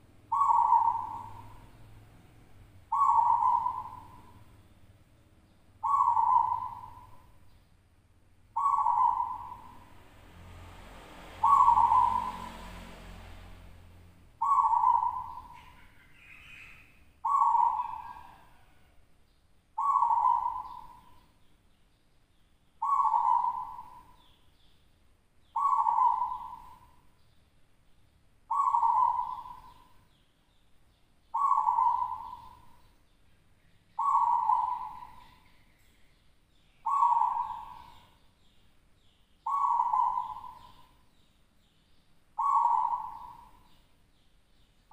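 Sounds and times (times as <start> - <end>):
dove cooing: 0.0 - 4.6, 5.8 - 7.4, 8.6 - 9.9, 11.3 - 12.7, 14.4 - 19.0, 19.8 - 21.3, 22.8 - 24.3, 25.6 - 27.0, 28.5 - 30.0, 31.3 - 32.8, 34.0 - 35.5, 36.8 - 38.1, 39.4 - 41.0, 42.4 - 43.8.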